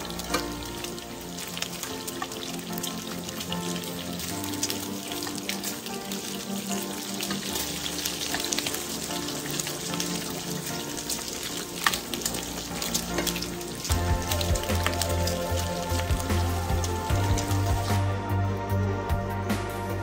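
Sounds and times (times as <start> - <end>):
bacon sizzling in a frying pan: 0.0 - 18.1
metal tongs clicking against pan: 0.2 - 0.6, 11.8 - 13.6
background music with bass: 11.7 - 20.0.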